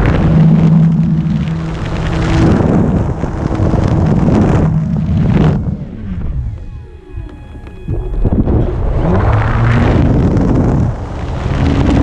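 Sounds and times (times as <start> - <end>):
model plane motor humming: 0.0 - 8.4
wind noise on microphone: 0.0 - 12.0.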